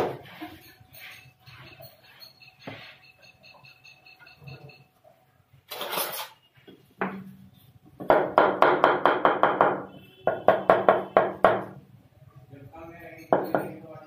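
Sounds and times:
brief scrape: 5.7 - 6.4
hammer tapping chisel on plaster: 13.2 - 13.8.

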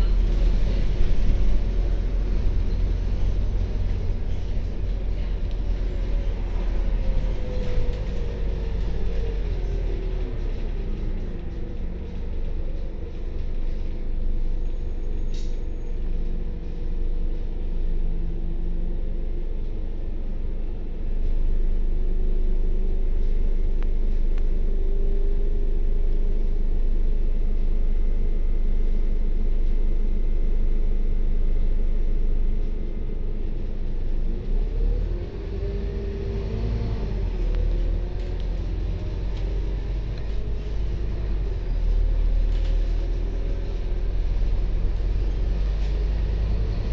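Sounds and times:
bus diesel engine idling: 0.0 - 26.7, 35.0 - 46.9
bus engine revving up: 33.4 - 46.9.

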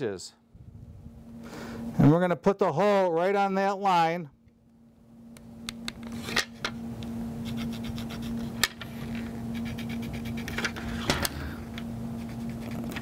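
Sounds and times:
steady low hum: 0.0 - 13.0
marker scratching on ball: 7.4 - 8.6, 9.4 - 10.6, 12.1 - 13.0.

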